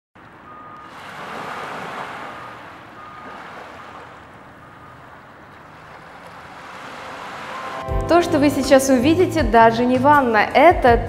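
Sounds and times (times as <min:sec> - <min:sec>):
wave washing in: 0:00.5 - 0:07.8.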